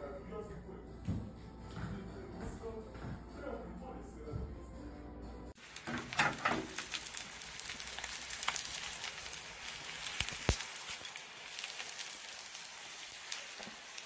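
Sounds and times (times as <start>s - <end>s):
egg sizzling in oil: 5.6s - 14.0s.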